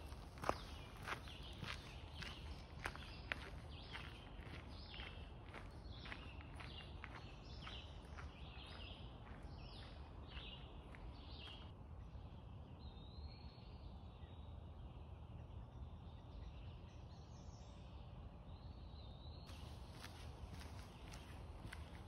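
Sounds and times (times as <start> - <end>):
footsteps on gravel: 0.0 - 11.7, 19.5 - 22.0
faint bird song: 0.0 - 22.0.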